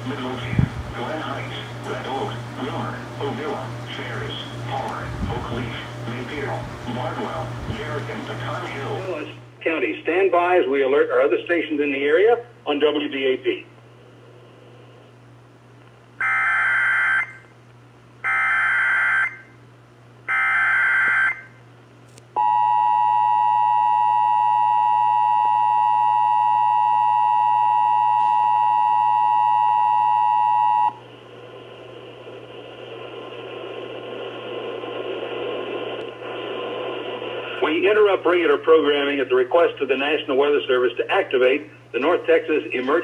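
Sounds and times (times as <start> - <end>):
radio static hiss: 0.0 - 13.8, 30.9 - 43.0.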